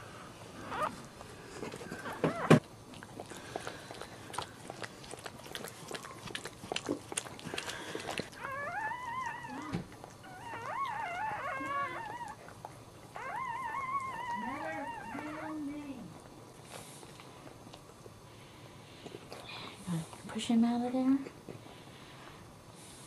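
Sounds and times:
puppies squealing and whining: 0.6 - 1.1, 1.9 - 2.6, 7.9 - 15.9
dog licking puppy: 0.7 - 18.2.

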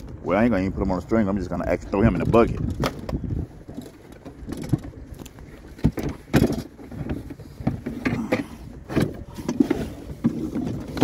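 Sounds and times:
knocks and bumps in a boat: 0.0 - 11.0.

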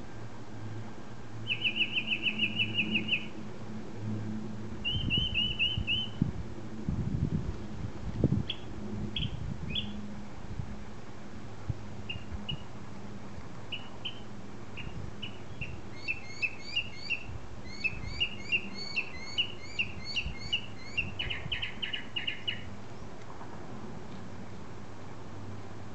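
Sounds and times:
songbird chirping: 1.4 - 3.3, 4.8 - 6.2, 13.7 - 23.2.

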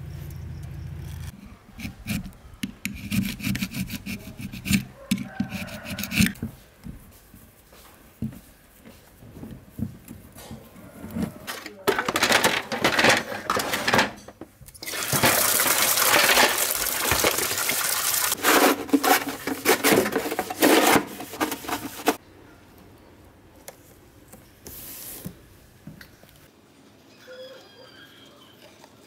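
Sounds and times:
plastic pieces clattering: 11.5 - 22.2
water splashing in a basin: 14.8 - 18.4.

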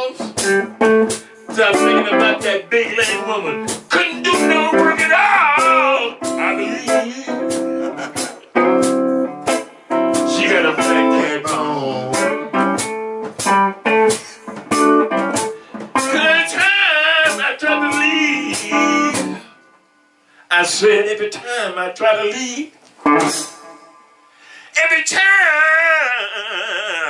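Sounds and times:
blues harmonica: 0.0 - 19.7
blues backing music: 0.0 - 24.3.

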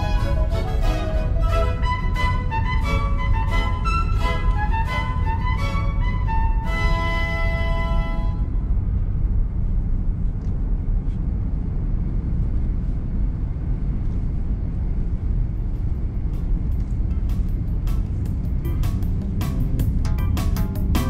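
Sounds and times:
violin music: 0.0 - 8.8
road and engine rumble in car: 0.0 - 21.0.

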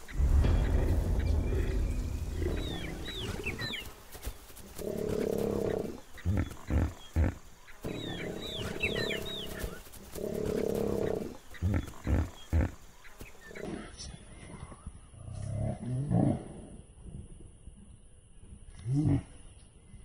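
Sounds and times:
high bird chirps: 0.0 - 4.0.

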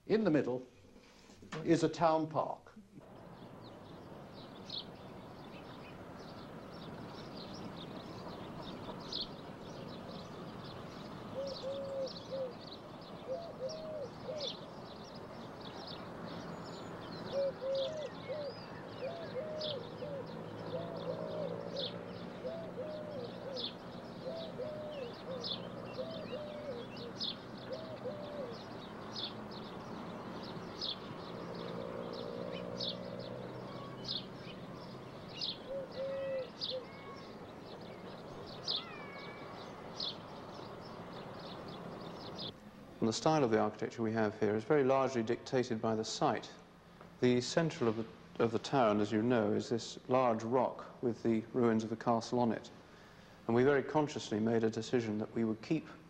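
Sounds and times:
birds chirping: 0.0 - 56.0
faint steady background noise: 0.0 - 56.0
bird cooing: 7.4 - 42.6.

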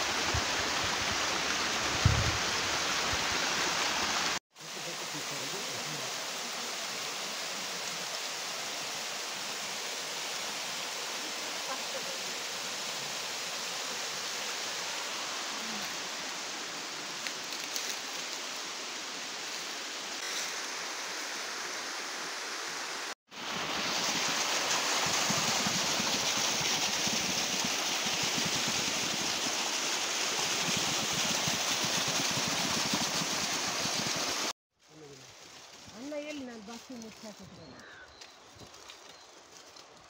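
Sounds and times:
waterfall and stream rushing: 0.0 - 34.6
water gushing from a pipe: 23.3 - 34.5.

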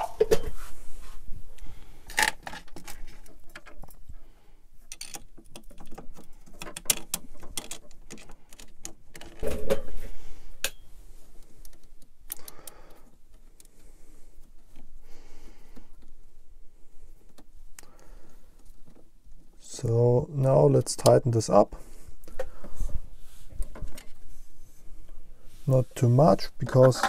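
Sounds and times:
metallic clicks and clatter: 4.9 - 9.8.

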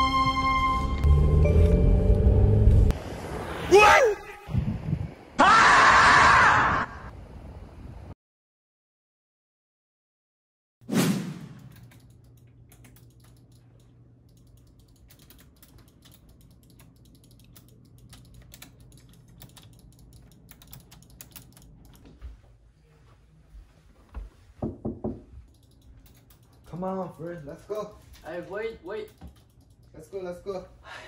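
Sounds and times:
keyboard and mouse clicking: 11.6 - 22.0, 25.5 - 26.9, 29.0 - 30.0.

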